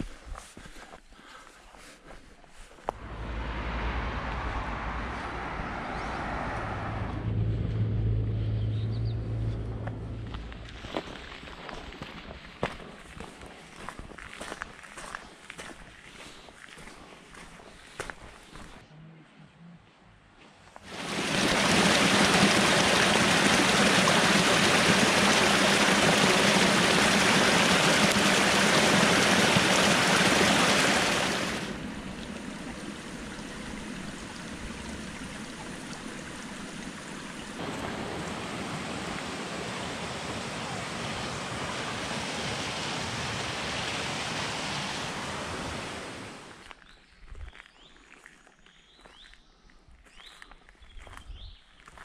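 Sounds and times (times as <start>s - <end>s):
water rushing over rocks: 20.9s - 46.6s.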